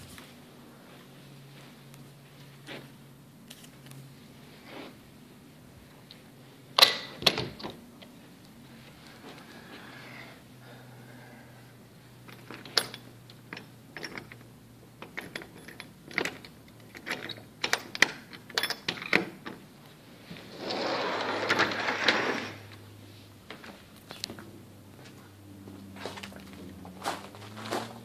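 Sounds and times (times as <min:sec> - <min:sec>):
handling clicks and knocks: 0:12.2 - 0:19.7
rushing scrape: 0:20.3 - 0:22.7.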